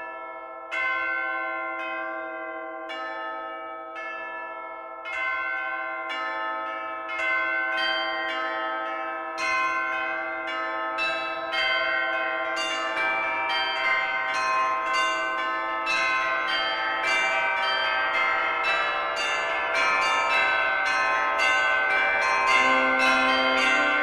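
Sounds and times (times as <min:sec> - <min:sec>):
church bells ringing: 0:00.0 - 0:24.0.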